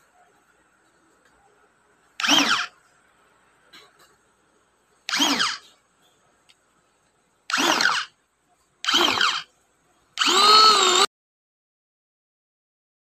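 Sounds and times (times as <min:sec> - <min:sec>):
electric food chopper whining: 0:02.2 - 0:02.7, 0:05.1 - 0:05.6, 0:07.5 - 0:08.1, 0:08.9 - 0:09.4, 0:10.2 - 0:11.1.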